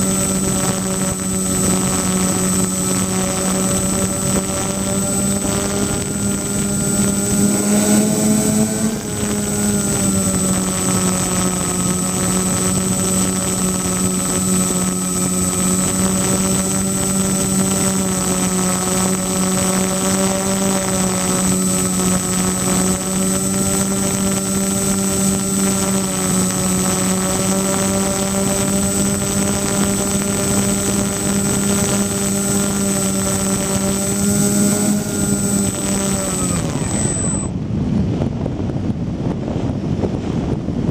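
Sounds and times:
propeller drone: 0:00.0 - 0:40.9.

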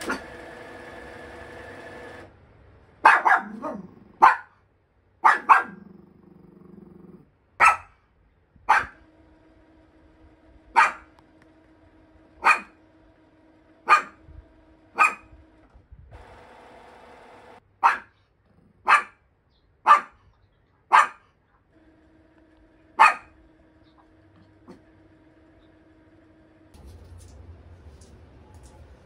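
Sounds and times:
small dog barking: 0:03.0 - 0:04.6, 0:05.2 - 0:05.9, 0:07.6 - 0:08.0, 0:08.7 - 0:09.0, 0:10.7 - 0:11.1, 0:12.4 - 0:12.8, 0:13.8 - 0:14.2, 0:14.9 - 0:15.3, 0:17.8 - 0:19.2, 0:19.8 - 0:20.2, 0:20.9 - 0:21.3, 0:22.9 - 0:23.4.

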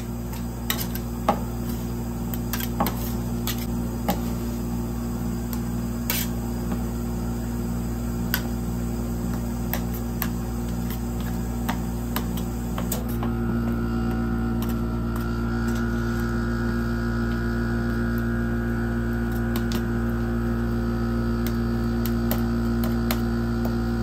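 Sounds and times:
refrigeration hum: 0:00.0 - 0:24.0
metal spatulas scraping steel plate: 0:00.3 - 0:04.2, 0:06.1 - 0:06.4.

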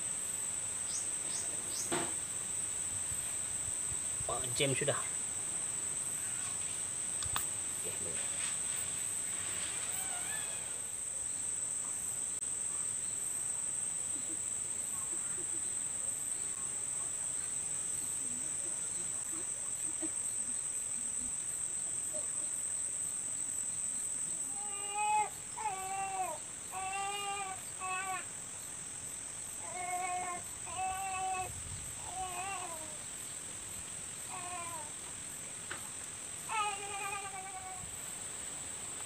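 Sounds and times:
insects shrilling: 0:00.3 - 0:11.5
animal crying: 0:09.9 - 0:10.8.

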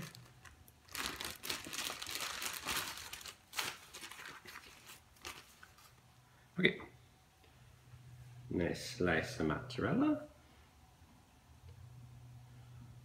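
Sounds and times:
plastic packaging crinkling: 0:00.0 - 0:06.0.

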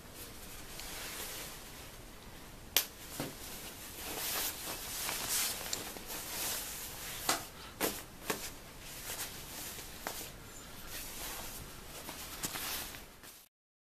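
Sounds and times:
nylon jacket rustling: 0:03.1 - 0:13.5.

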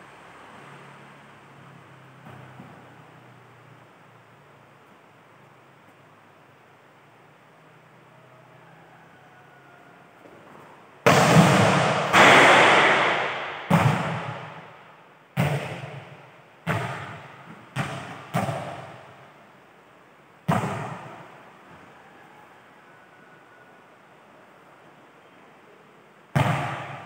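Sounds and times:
volleyball smacks and bounces: 0:11.1 - 0:14.7, 0:15.4 - 0:19.2, 0:20.4 - 0:21.4, 0:26.3 - 0:27.0.

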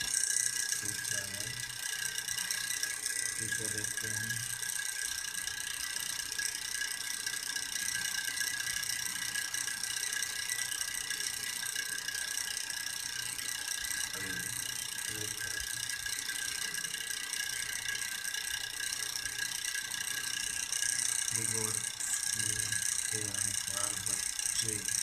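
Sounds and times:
high-pitched buzzing: 0:00.0 - 0:06.8, 0:13.4 - 0:25.0.

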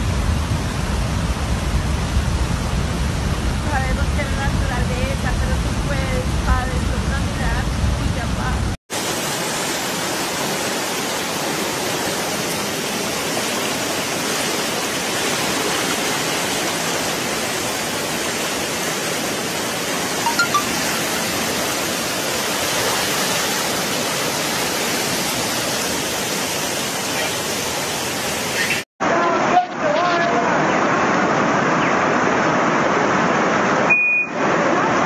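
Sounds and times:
floodwater rushing: 0:07.4 - 0:35.0.

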